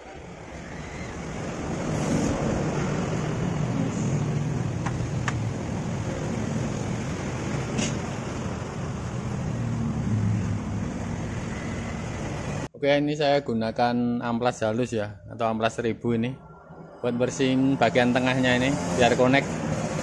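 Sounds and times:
vehicle engine rumbling: 0.0 - 12.7.

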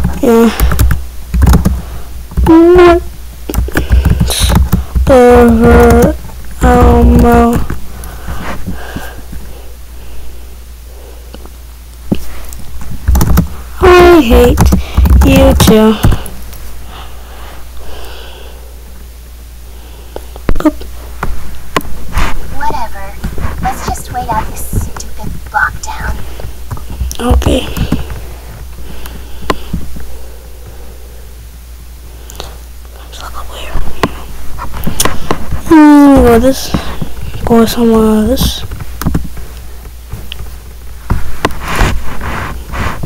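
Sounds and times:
low electrical hum: 0.0 - 43.0
person humming: 2.4 - 7.7
soft breath noises: 7.9 - 11.5.

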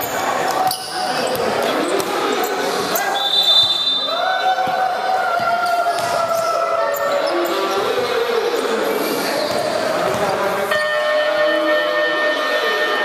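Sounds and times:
crowd shouting and cheering: 0.0 - 13.0.

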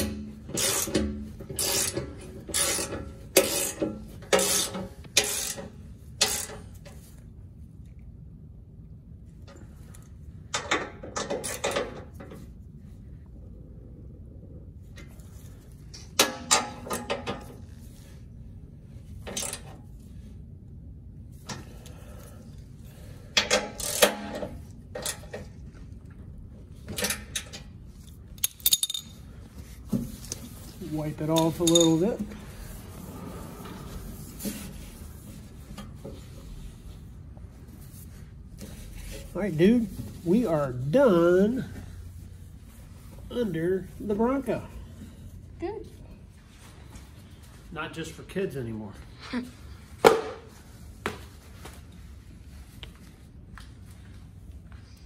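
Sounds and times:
metal hand tools clinking: 31.4 - 32.1.

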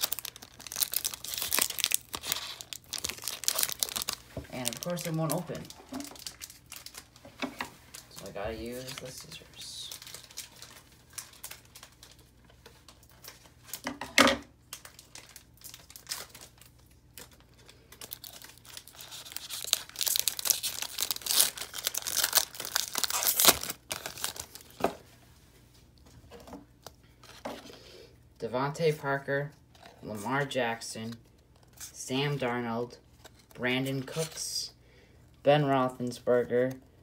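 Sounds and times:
plastic wrapper crinkling and tearing: 0.0 - 7.2, 7.8 - 13.8, 14.6 - 24.8.

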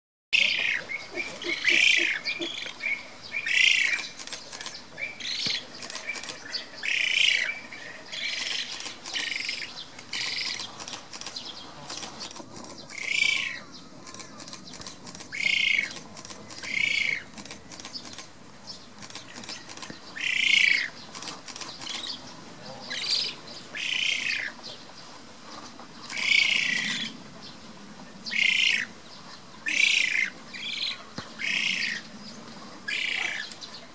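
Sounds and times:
bird chick calling: 0.4 - 7.6, 8.2 - 18.3.

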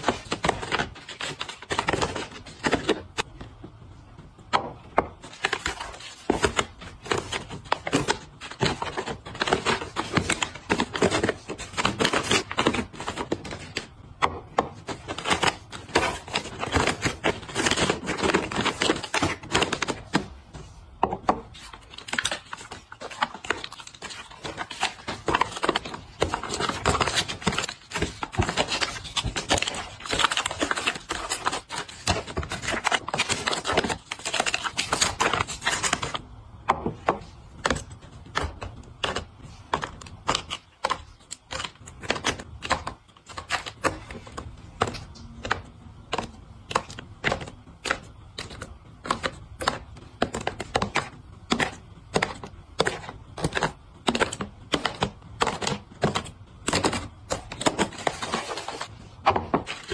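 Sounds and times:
crinkling plastic packaging: 0.0 - 3.3, 21.5 - 36.2, 37.6 - 59.9.

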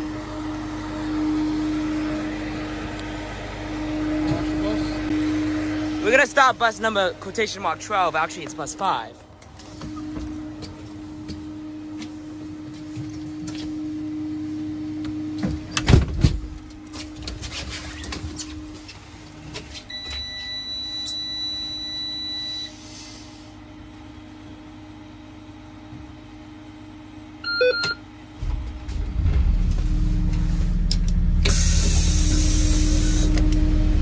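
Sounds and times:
steady low hum: 0.0 - 19.9, 23.4 - 34.0
short beep: 27.4 - 28.0
warning buzzer tone: 27.4 - 28.0.

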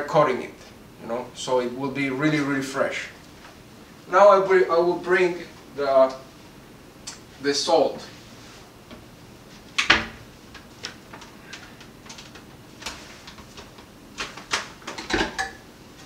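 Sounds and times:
items clicking and knocking on counter: 9.8 - 15.6.

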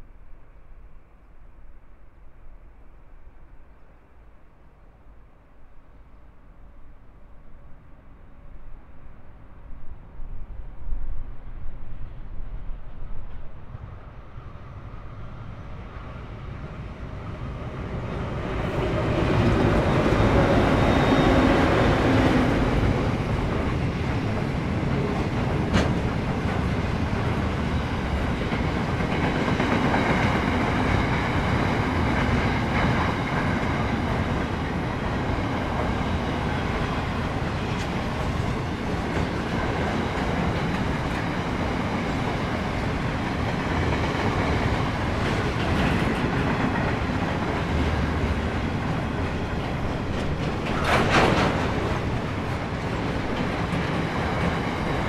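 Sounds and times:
diesel locomotives passing: 9.3 - 55.0
train wheels clattering over rails: 17.9 - 55.0.

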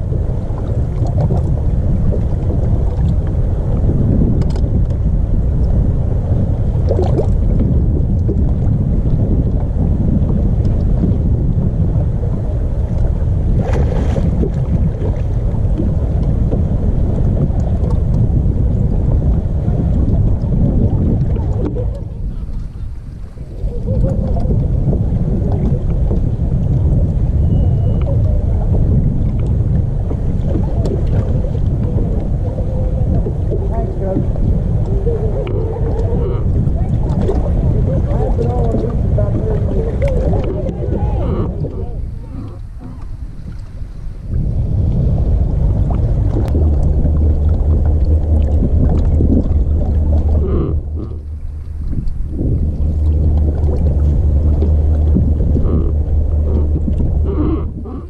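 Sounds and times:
water noise around a boat: 0.0 - 58.0
wind rumbling on microphone: 0.0 - 58.0
faint clicks: 4.4 - 5.0.

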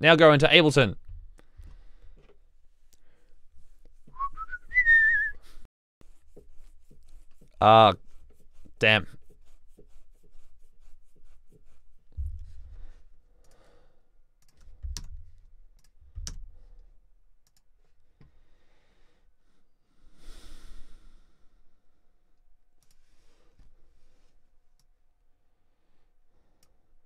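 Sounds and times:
sigh-like breath: 20.0 - 21.6.

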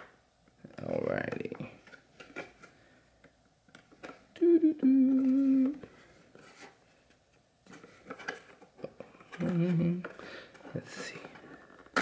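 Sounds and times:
man humming: 4.4 - 5.8.

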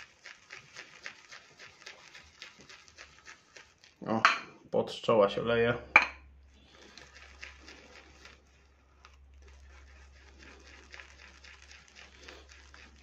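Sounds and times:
shaving brush swirling lather: 0.0 - 4.2, 6.5 - 13.0.

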